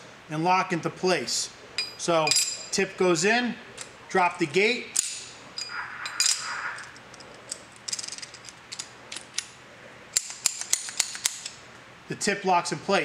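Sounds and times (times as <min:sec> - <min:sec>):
metal clicks and rattling: 0:05.0 - 0:11.6.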